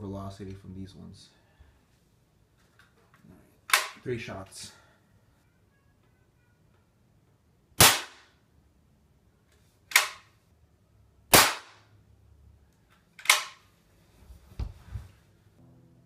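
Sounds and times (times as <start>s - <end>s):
air rifle cracks: 3.7s - 4.0s, 9.9s - 10.3s, 13.2s - 13.7s.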